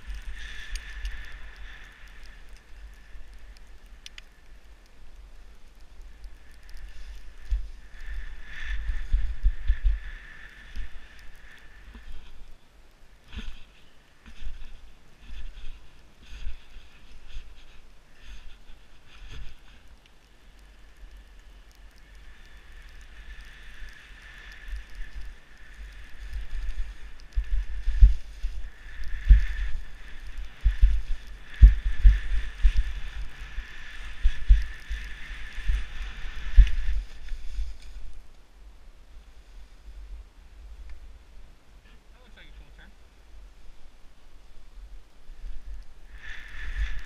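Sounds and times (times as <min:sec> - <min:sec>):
skis sliding over snow: 0:00.0 - 0:38.3, 0:45.3 - 0:47.0
wind buffeting microphone: 0:06.0 - 0:12.5, 0:24.6 - 0:38.3, 0:44.9 - 0:47.0.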